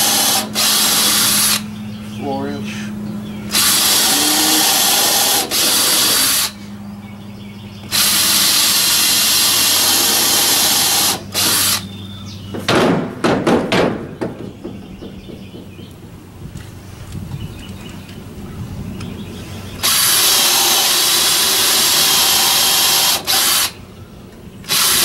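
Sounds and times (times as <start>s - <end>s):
drill boring into wood: 0.0s - 1.7s, 3.5s - 6.6s, 7.9s - 11.8s, 19.8s - 23.8s, 24.6s - 25.0s
sharp knocks: 12.5s - 15.8s.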